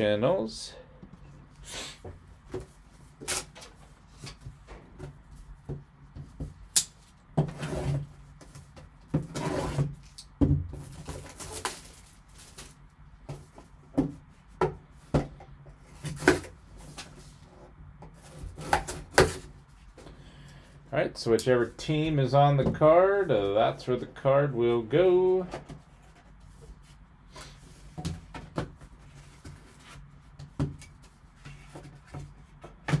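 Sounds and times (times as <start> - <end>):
packaging rustling and crinkling: 10.8 - 12.9.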